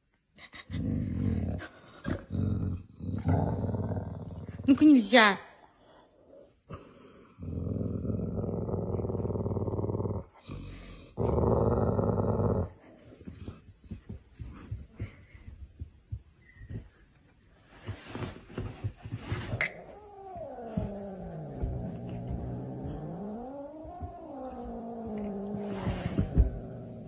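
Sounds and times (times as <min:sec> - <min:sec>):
dog growling: 0:00.6 - 0:04.7, 0:07.4 - 0:13.0, 0:19.4 - 0:27.0
animals scuffling on couch: 0:13.0 - 0:27.0.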